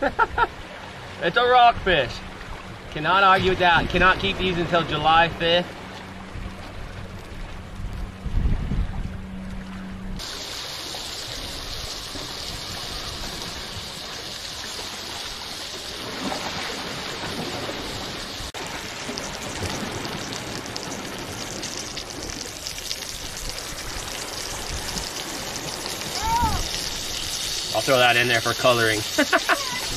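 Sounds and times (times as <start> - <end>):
butter and oil sizzling in a skillet: 10.2 - 15.9, 25.4 - 29.9.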